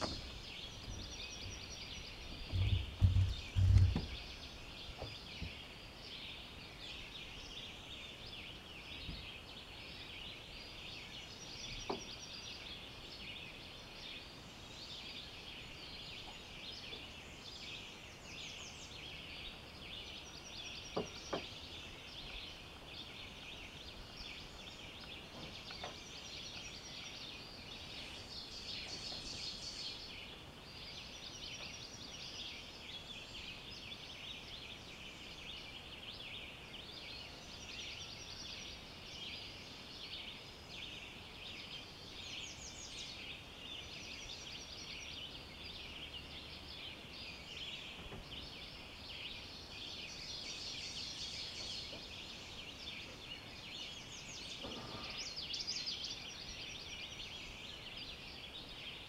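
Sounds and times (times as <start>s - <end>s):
birds chirping: 0.0s - 59.0s
high bird song phrases: 0.0s - 59.0s
faint knocks: 2.3s - 4.3s.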